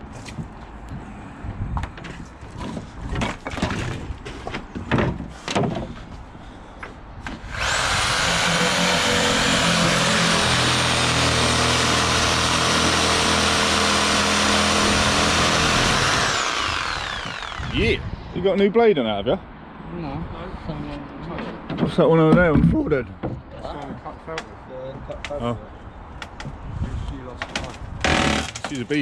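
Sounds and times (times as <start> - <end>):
reciprocating saw cutting wood: 7.4 - 18.1, 28.0 - 28.7.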